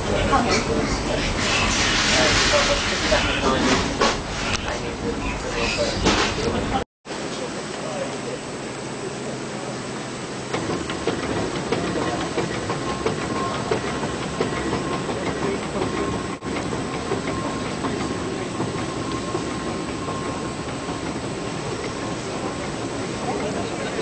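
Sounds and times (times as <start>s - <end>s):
steam engine rhythmic clatter: 0.0s - 6.8s, 10.5s - 24.0s
paddle wheels churning: 10.6s - 24.0s.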